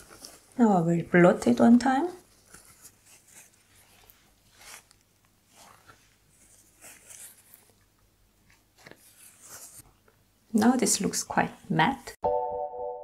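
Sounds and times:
paper tissue rustling: 0.0 - 9.9.

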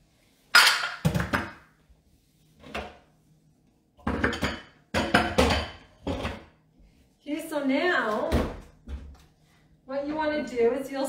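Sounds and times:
bowls clattering and clinking: 0.6 - 1.6, 4.0 - 6.5.

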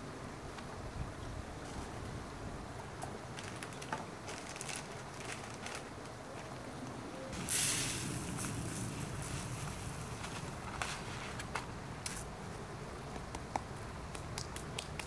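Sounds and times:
plastic bag rustling: 3.3 - 6.7, 7.4 - 11.6.

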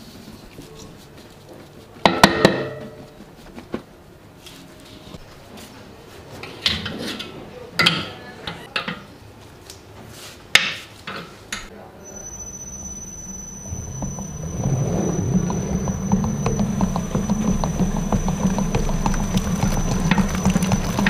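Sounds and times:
mixer motor whine and hum: 12.4 - 21.0
steel mixer bowl clanking: 13.0 - 21.0.

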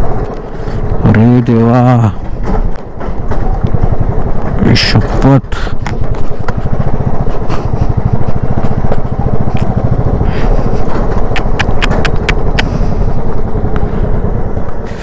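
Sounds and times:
motorcycle engine pulsing: 0.0 - 15.0
sharp clicks and rattles: 0.0 - 15.0.

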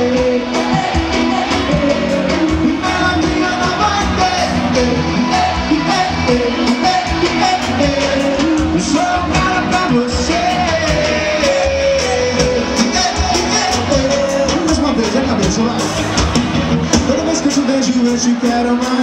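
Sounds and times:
live band music with singer: 0.0 - 19.0.

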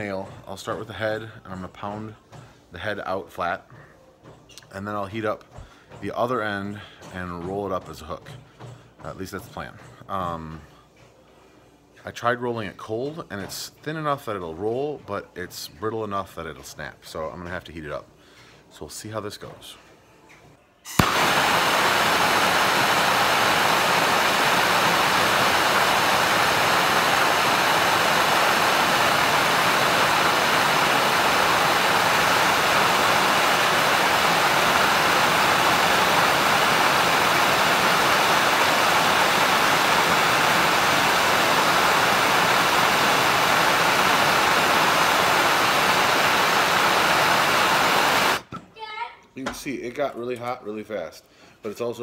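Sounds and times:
gas torch flame hissing: 20.9 - 48.5.

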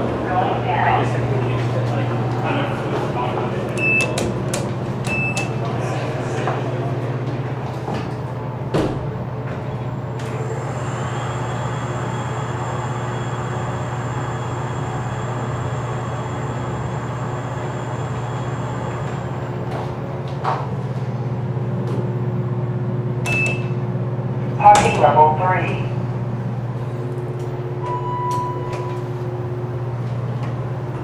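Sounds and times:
elevator cab hum: 0.0 - 31.0
faint high drive whine: 27.0 - 30.0
short electronic beep: 27.8 - 29.0.

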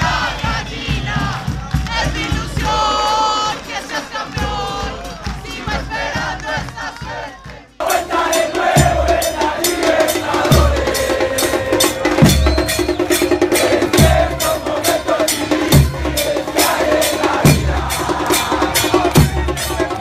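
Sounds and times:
crowd chanting: 0.0 - 20.0
drum band playing: 0.0 - 20.0
bass drum thumping: 17.3 - 20.0.

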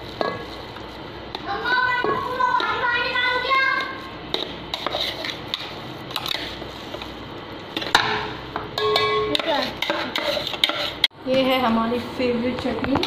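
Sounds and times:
metal spoon scraping a pot: 4.4 - 6.6, 8.8 - 11.1.

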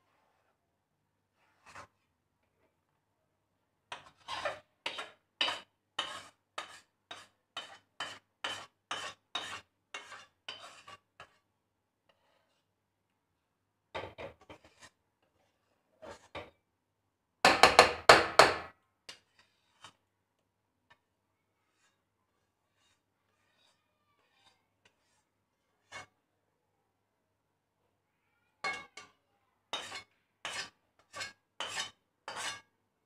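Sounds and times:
metal spatula scraping pan: 1.4 - 2.0, 3.9 - 11.5, 12.1 - 12.7, 14.0 - 16.6, 19.1 - 20.1, 21.7 - 26.1, 28.6 - 32.7.

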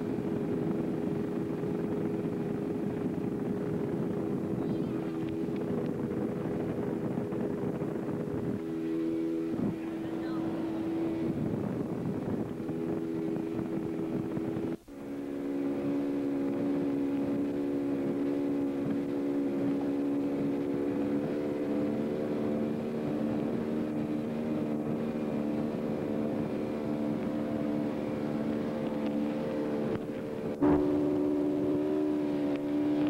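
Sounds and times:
motorboat engine humming: 0.0 - 33.0
water rushing: 0.0 - 33.0
wind: 0.0 - 33.0.

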